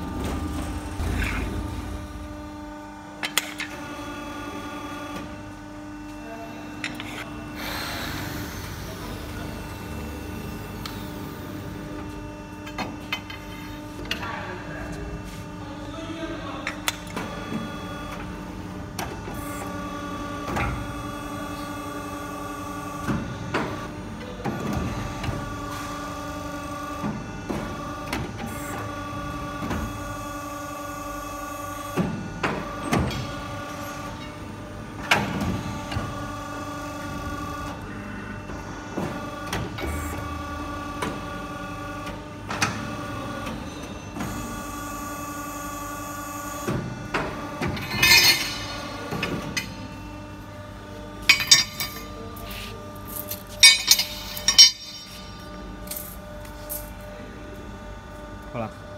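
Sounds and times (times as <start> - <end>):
hydraulic whine: 0.0 - 6.0, 6.8 - 14.0.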